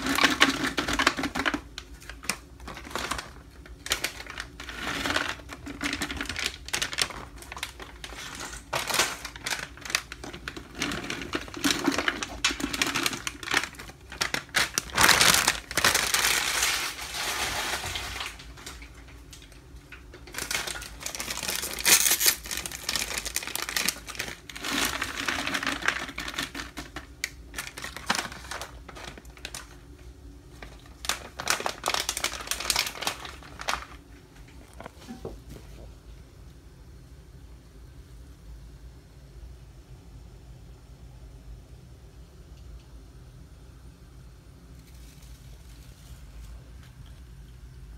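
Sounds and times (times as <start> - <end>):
plastic packets crinkling: 0.0 - 35.3.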